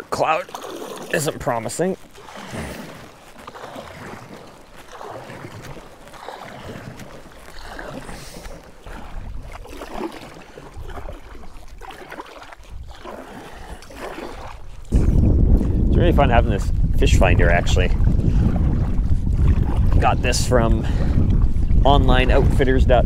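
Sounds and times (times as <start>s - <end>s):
paddle strokes splashing: 0.0s - 23.0s
wind on microphone: 6.4s - 23.0s.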